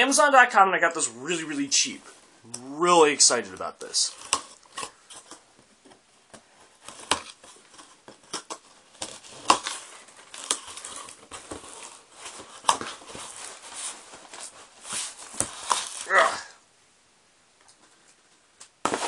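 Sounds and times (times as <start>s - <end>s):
cardboard rustling: 3.2s - 16.1s
cardboard scrapes and knocks: 6.4s - 16.1s
packing tape being slit: 6.9s - 13.8s, 14.4s - 16.1s.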